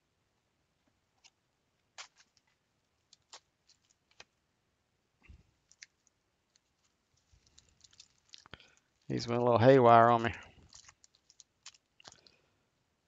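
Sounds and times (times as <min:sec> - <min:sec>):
foil card packs crinkling: 0:02.0 - 0:02.5, 0:03.1 - 0:04.3, 0:05.7 - 0:12.4.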